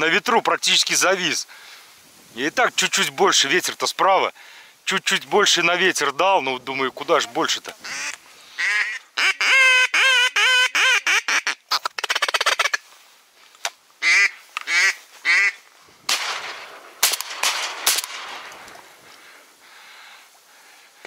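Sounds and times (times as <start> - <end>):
duck call quacks: 7.8 - 12.8, 14.0 - 15.6
shotgun shots: 16.1 - 18.9.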